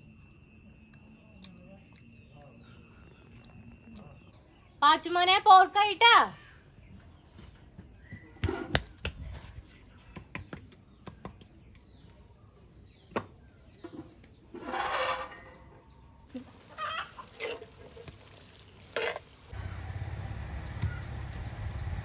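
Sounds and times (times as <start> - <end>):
spoon stirring in metal pot: 17.2 - 19.4.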